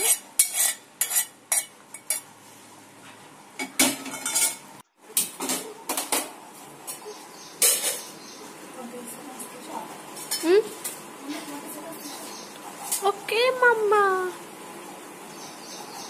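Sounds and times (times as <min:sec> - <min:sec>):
steel kitchen vessels clattering: 0:00.0 - 0:02.3, 0:03.6 - 0:07.0, 0:07.6 - 0:08.1.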